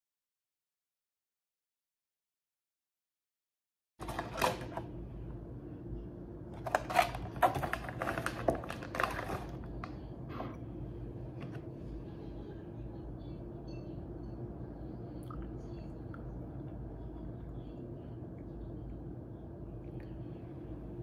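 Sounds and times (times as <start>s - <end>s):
paper box rustling and tapping: 4.0s - 4.8s, 6.6s - 9.9s
steady low hum: 4.0s - 21.0s.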